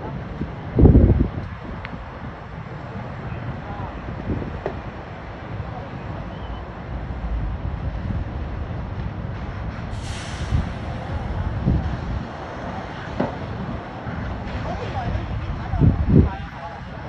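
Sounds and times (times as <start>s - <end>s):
low rumble of engines: 0.0s - 17.0s
wind buffeting microphone: 0.0s - 17.0s
hissing air burst: 9.9s - 11.9s.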